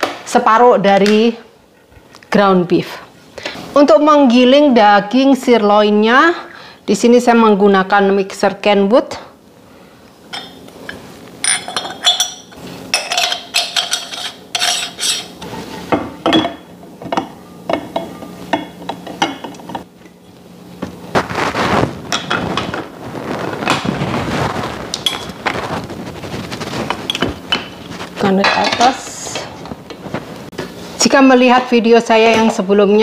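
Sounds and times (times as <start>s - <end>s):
metal rubbing while screwing: 13.2s - 15.9s.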